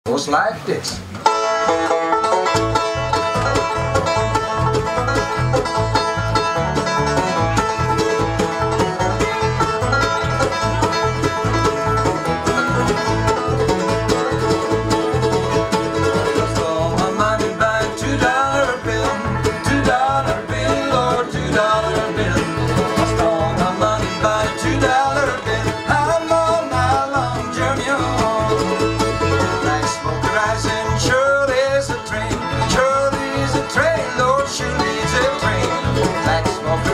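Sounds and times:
bluegrass band playing: 0.1 - 36.9
man singing lead vocal: 16.3 - 36.9.

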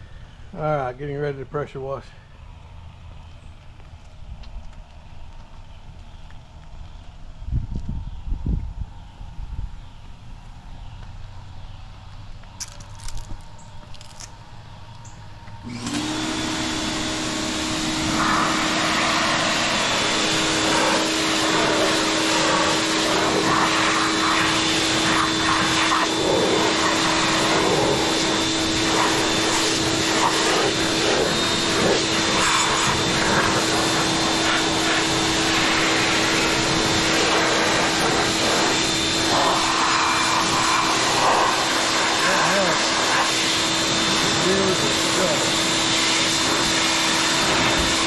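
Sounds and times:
pressure washer motor hum: 12.7 - 48.0
water jet hissing and splashing: 15.9 - 48.0.

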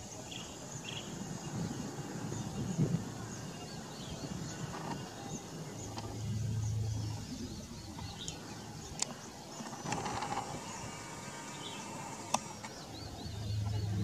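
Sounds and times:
birds chirping: 0.0 - 14.0
low hum: 5.7 - 9.0, 9.9 - 14.0
sharp clicks: 12.2 - 12.8.

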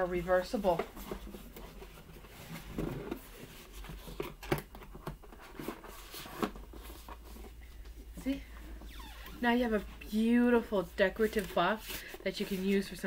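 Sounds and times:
cardboard box creasing and rustling: 0.5 - 4.4.

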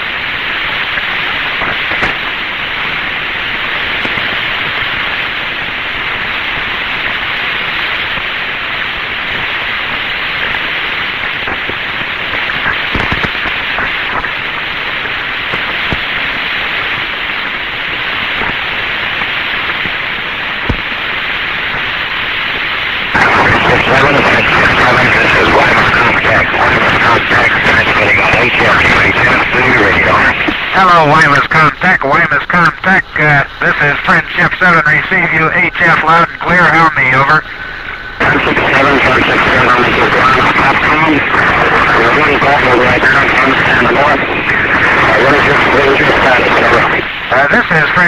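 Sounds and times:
radio static hiss: 0.0 - 48.0.

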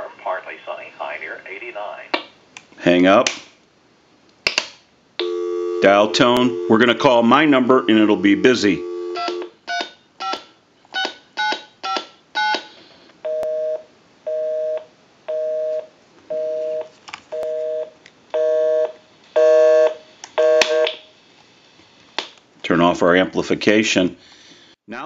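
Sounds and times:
busy signal beeps: 5.2 - 6.9, 7.5 - 9.4.

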